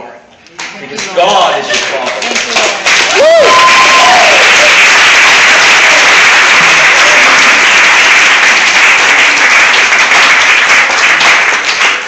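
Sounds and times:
congregation applauding: 1.7s - 12.0s.

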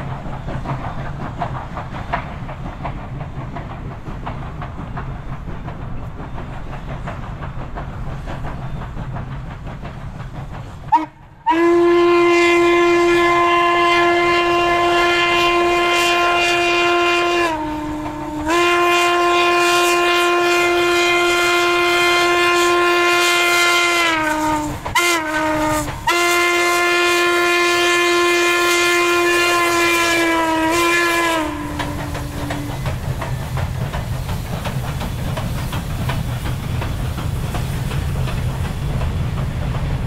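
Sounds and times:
locomotive low rumble: 0.0s - 40.0s
steam whistle blasts: 10.9s - 32.8s.

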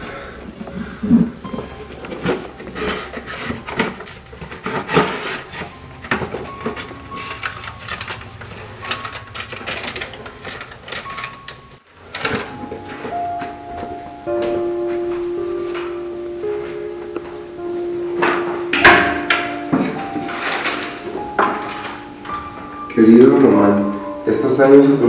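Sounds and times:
cardboard box rustling and scraping: 2.3s - 5.8s.

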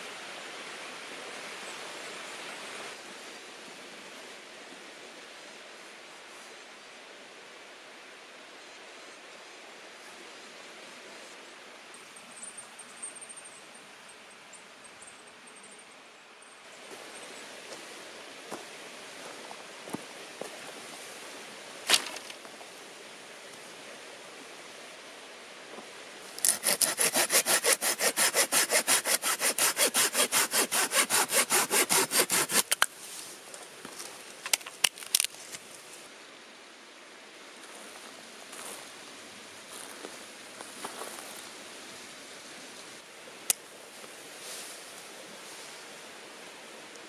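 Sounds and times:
hand saw cutting wood: 26.4s - 32.9s.

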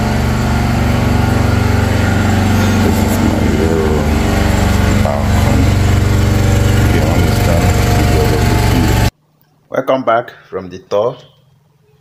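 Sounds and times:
engine droning: 0.0s - 9.1s.

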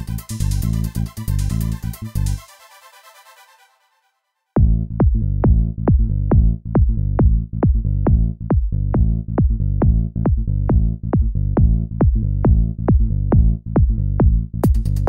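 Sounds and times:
low synth chords: 0.0s - 2.4s, 4.6s - 15.0s
electronic dance music: 0.0s - 3.8s, 14.6s - 15.0s
steady kick drum: 4.6s - 15.0s.

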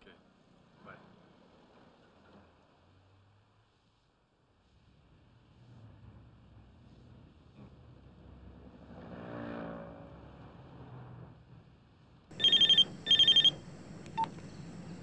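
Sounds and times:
telephone trilling ring: 12.3s - 15.0s
low hum: 12.4s - 15.0s.

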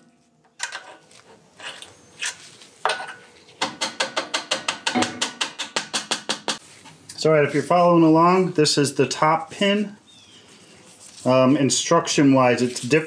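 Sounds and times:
metal clicks and knocks: 2.9s - 6.6s.

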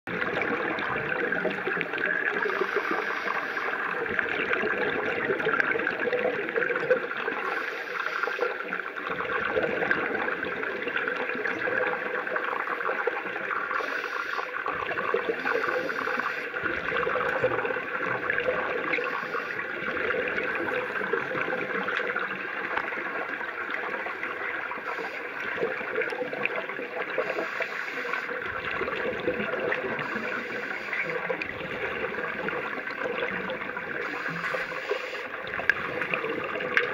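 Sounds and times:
underwater breathing hiss: 2.3s - 3.9s, 7.4s - 8.7s, 13.7s - 14.6s, 15.4s - 16.6s, 18.9s - 19.6s, 24.8s - 25.5s, 27.1s - 28.4s, 30.0s - 31.4s, 34.0s - 35.4s.

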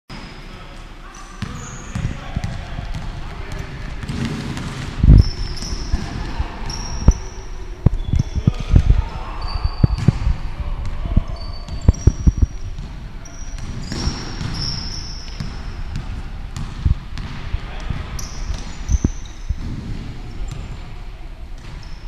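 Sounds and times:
sneaker squeaks: 0.1s - 3.0s, 5.0s - 10.4s, 11.0s - 20.9s, 21.6s - 22.0s
basketball bouncing: 1.4s - 9.0s, 9.8s - 20.8s.

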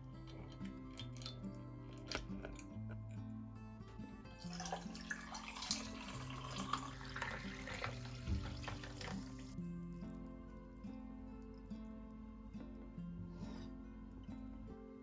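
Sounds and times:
background music: 0.0s - 15.0s
liquid pouring over ice: 4.4s - 9.6s.

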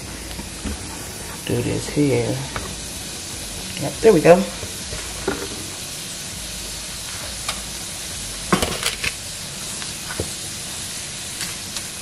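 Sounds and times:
food sizzling in skillet: 0.0s - 12.0s.

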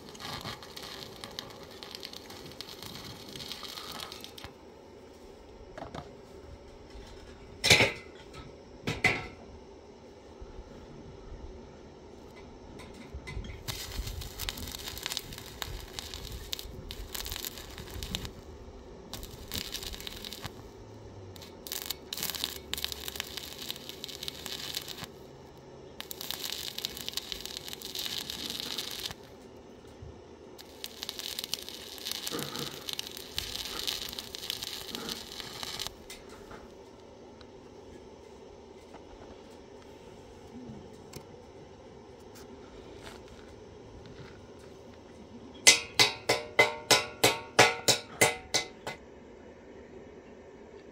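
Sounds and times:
welding arc crackling: 0.0s - 4.6s, 13.4s - 30.0s, 30.6s - 37.0s.

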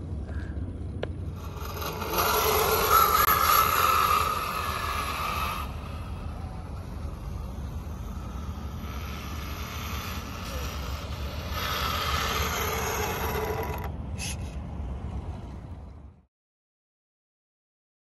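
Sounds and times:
heavy low rumble: 0.0s - 16.3s
toy truck motor whirring: 1.3s - 14.6s.

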